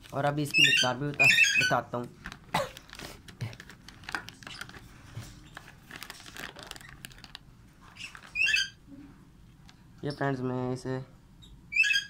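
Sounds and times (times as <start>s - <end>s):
plastic packet crinkling: 0.0s - 8.7s.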